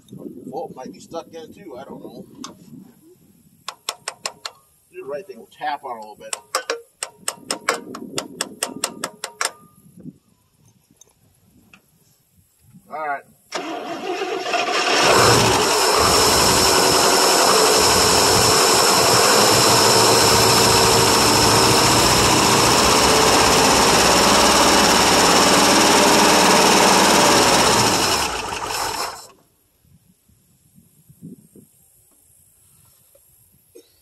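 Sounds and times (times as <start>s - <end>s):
pickup truck engine running: 14.6s - 29.3s.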